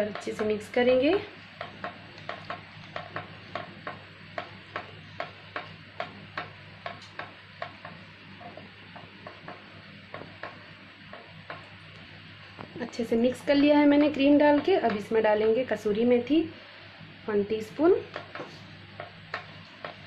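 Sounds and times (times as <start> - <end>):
low steady hum: 0.0 - 20.0
spatula clicking against pan: 1.6 - 11.8.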